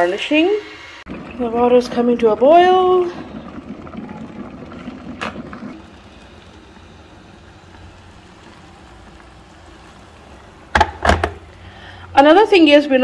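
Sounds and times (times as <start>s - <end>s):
kettle boiling: 0.0s - 13.0s
water pouring into cup: 1.1s - 9.7s.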